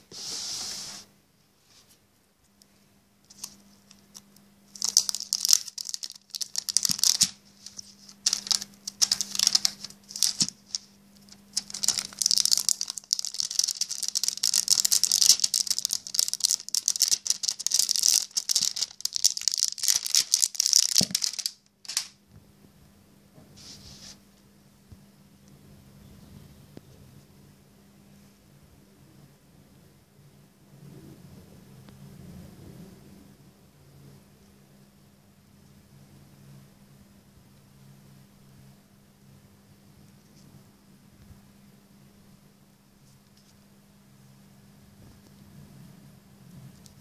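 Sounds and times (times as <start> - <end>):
plastic film crinkling: 3.3 - 22.2.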